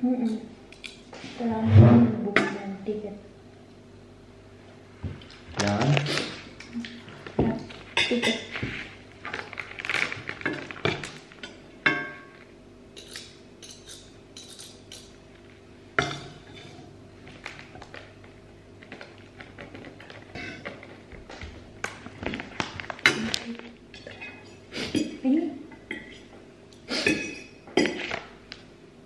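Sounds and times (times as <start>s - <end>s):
metal tongs clinking on pan: 13.0s - 15.1s.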